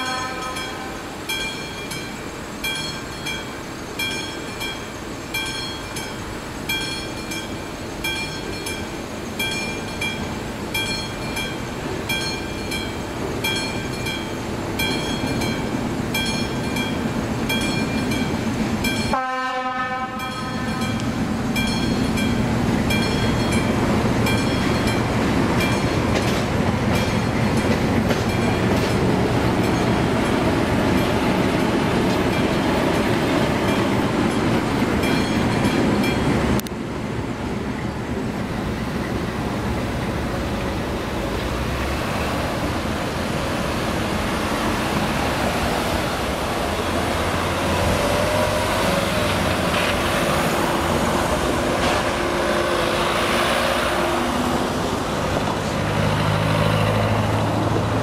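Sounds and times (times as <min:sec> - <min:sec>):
level-crossing warning bell: 0:00.0 - 0:36.7
diesel locomotive running: 0:00.0 - 0:58.0.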